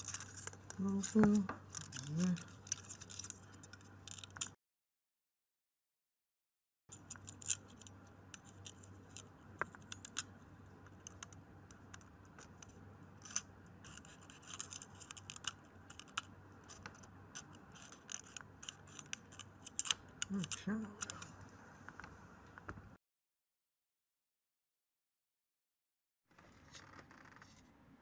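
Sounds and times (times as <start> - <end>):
low steady hum: 0.0 - 4.5, 6.9 - 23.0.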